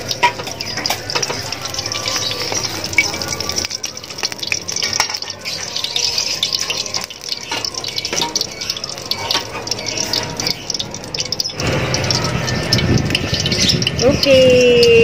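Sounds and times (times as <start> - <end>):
oil sizzling in a wok: 0.0 - 15.0.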